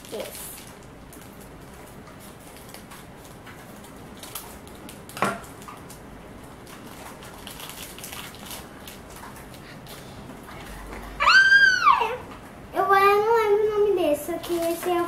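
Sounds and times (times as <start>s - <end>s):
plastic wrapper crinkling: 0.0s - 10.7s, 14.4s - 15.0s.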